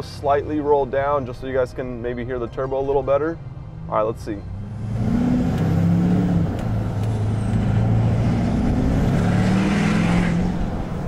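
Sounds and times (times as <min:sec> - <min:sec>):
diesel truck accelerating: 0:03.4 - 0:11.0.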